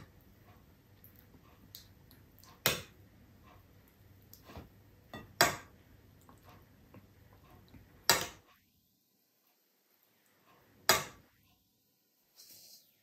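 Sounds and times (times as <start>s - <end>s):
metal spoon clinking on plates: 5.1s - 5.7s.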